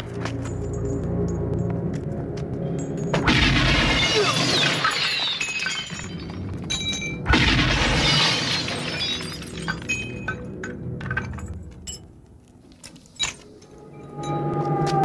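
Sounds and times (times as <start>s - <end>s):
film score music: 0.0s - 4.4s, 9.2s - 15.0s
glass shattering: 3.1s - 10.4s.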